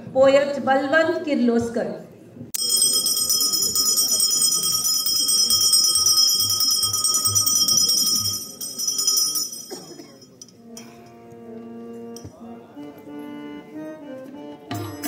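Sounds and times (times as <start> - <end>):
bell ringing: 2.6 - 10.6.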